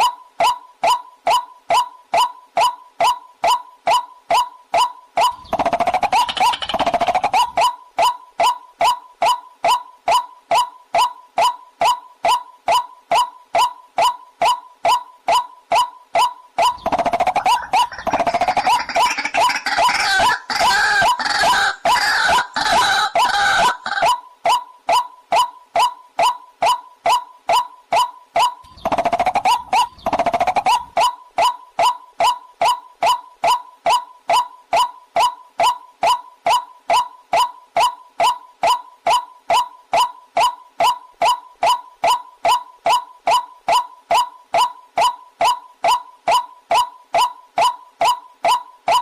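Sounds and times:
bird hooked call notes: 5.2s - 8.2s, 16.6s - 24.2s, 28.4s - 31.6s
harsh croaking chatter: 17.4s - 24.2s.

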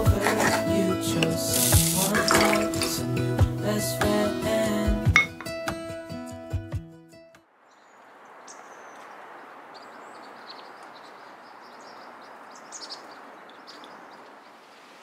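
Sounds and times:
small birds chirping: 7.6s - 15.0s.

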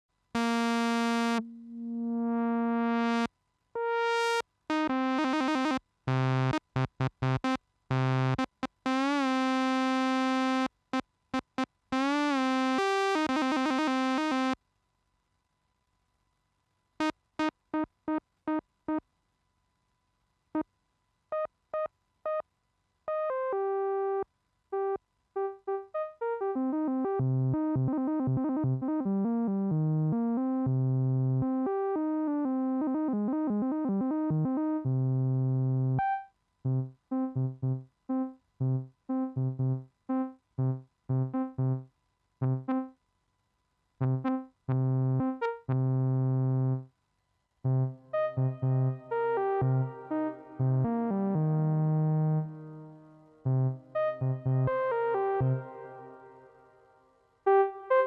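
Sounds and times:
synthesizer playing notes: 0.4s - 4.0s, 32.3s - 41.8s, 47.7s - 56.4s.

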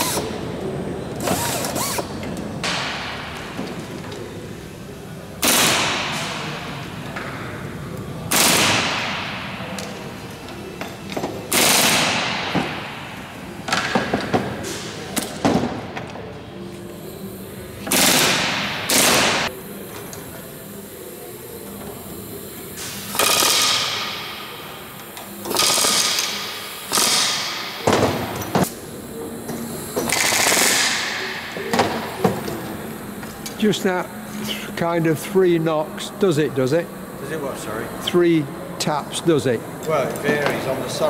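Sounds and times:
pneumatic rivet gun hammering: 0.0s - 0.4s, 1.2s - 3.8s, 5.4s - 6.5s, 8.3s - 10.0s, 10.8s - 13.0s, 17.8s - 19.5s, 22.8s - 28.8s, 29.5s - 33.6s.

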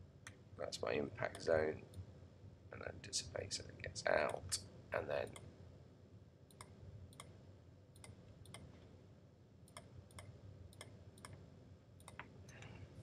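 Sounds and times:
faint computer mouse clicks: 9.7s - 11.4s, 12.0s - 12.7s.

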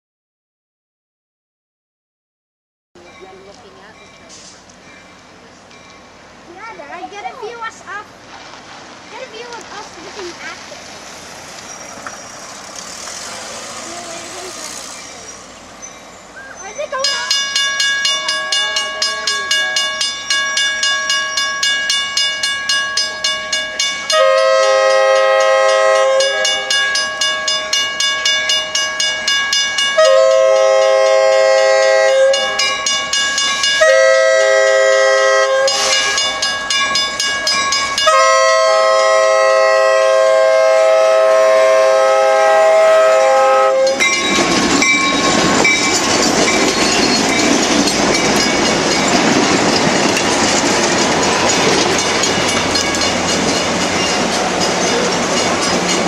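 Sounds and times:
train wheels rushing on rails: 3.0s - 56.0s
locomotive air horn blasts: 24.1s - 26.8s, 30.0s - 32.6s, 33.8s - 36.3s, 38.0s - 44.1s.

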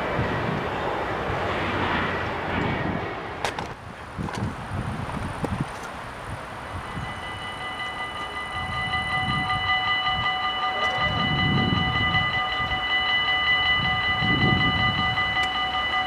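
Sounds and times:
level-crossing warning bells: 6.4s - 16.0s.

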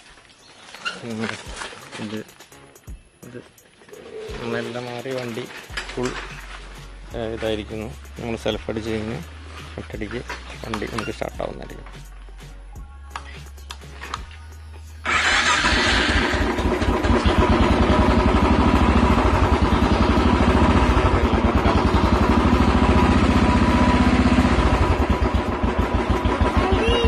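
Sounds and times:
motorcycle engine idling: 1.6s - 11.9s, 15.0s - 27.0s
motorcycle engine cranking: 3.8s - 6.7s, 10.2s - 11.5s, 15.0s - 26.8s.

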